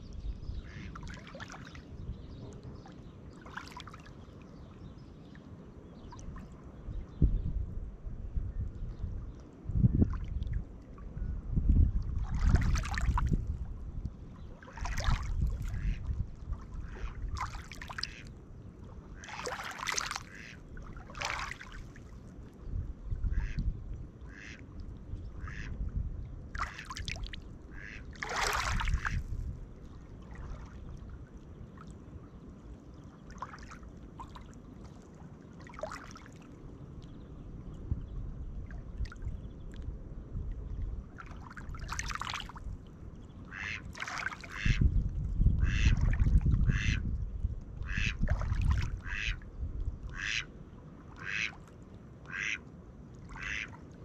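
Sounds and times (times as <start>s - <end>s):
waves lapping on pebbles: 19.3s - 21.9s, 28.2s - 29.2s, 41.3s - 42.6s
duck quacking: 20.3s - 20.6s, 24.3s - 24.6s, 27.8s - 28.0s, 43.5s - 43.8s, 44.5s - 44.8s, 45.6s - 46.0s, 46.7s - 47.0s, 47.8s - 48.2s, 49.0s - 49.4s, 50.1s - 50.5s, 51.2s - 51.6s, 52.3s - 52.6s, 53.4s - 53.7s.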